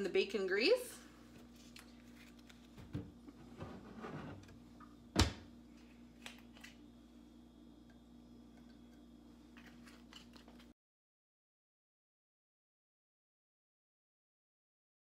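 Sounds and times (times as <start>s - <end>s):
steady low hum: 1.0s - 10.7s.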